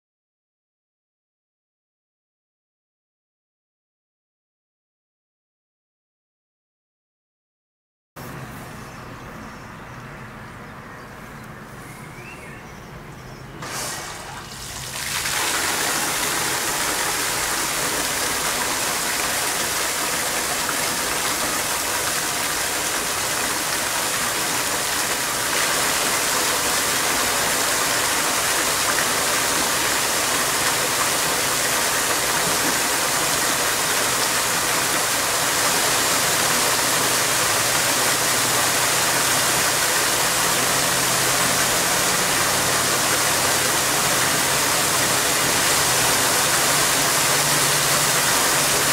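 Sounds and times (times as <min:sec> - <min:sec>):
fountain jets switching on: 0:13.6 - 0:48.9
water splashing into a pool: 0:13.6 - 0:48.9.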